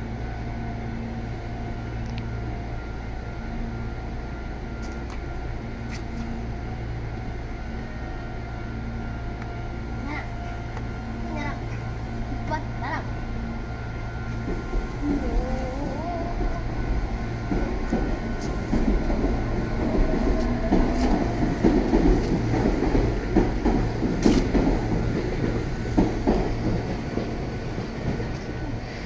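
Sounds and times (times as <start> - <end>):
electric train whine: 0.0 - 29.0
train wheels clacking over rail joints: 17.5 - 28.5.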